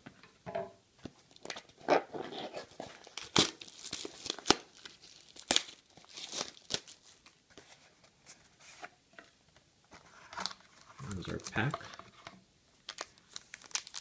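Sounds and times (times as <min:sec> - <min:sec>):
plastic wrap crinkling: 0:01.3 - 0:07.7, 0:12.8 - 0:14.0
plastic wrap tearing snaps: 0:03.0 - 0:07.0, 0:12.9 - 0:14.0.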